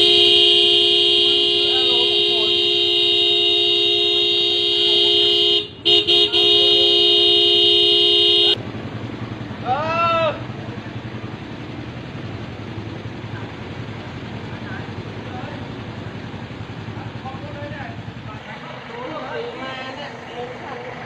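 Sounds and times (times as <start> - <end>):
vehicle horn blasting: 0.0 - 8.6.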